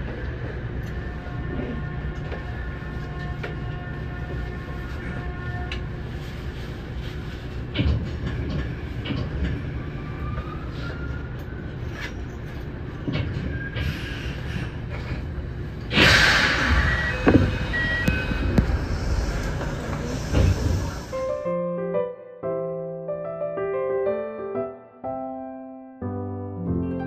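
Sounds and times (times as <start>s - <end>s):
electric train humming: 13.8s - 21.4s
loud hiss of air: 15.9s - 21.4s.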